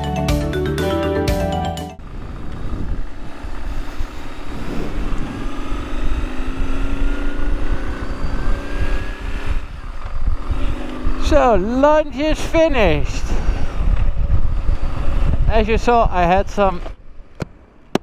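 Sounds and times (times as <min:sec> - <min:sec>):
wind rush on microphone: 0:02.0 - 0:17.4
motorcycle engine running: 0:02.0 - 0:18.0.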